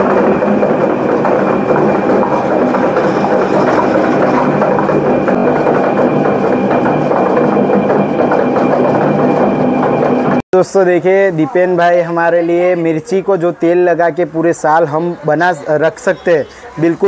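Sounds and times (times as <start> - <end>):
steady machine drone: 0.0 - 10.4.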